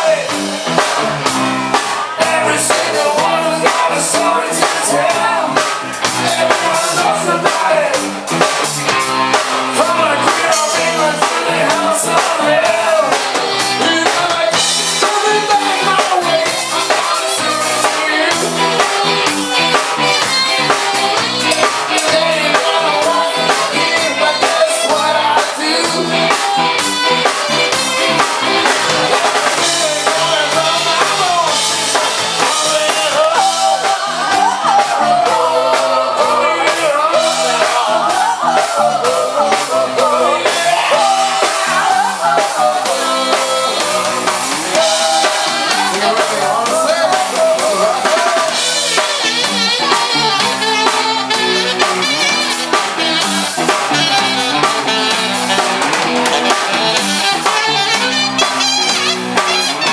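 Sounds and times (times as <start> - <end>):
drum kit beat: 0.0 - 59.9
electric bass: 0.0 - 59.9
woman singing: 21.2 - 26.3.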